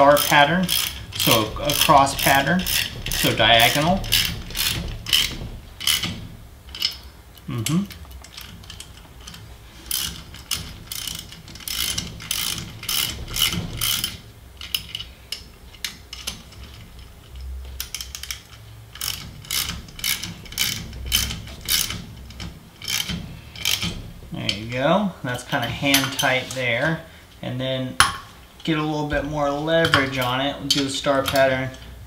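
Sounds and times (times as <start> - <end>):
socket ratchet clicking: 0.1 - 24.0.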